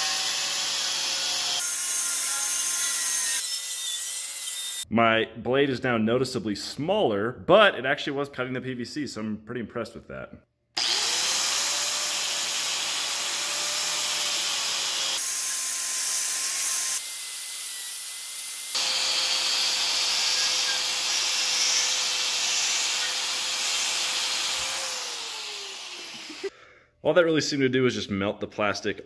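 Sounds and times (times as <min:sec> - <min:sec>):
angle grinder whining: 0:00.0 - 0:04.8, 0:10.8 - 0:26.5.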